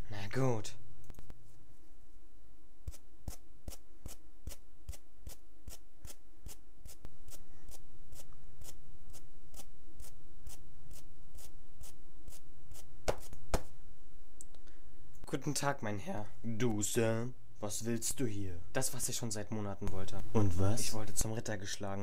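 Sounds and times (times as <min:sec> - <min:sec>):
footstep taps: 0:13.1 - 0:13.7.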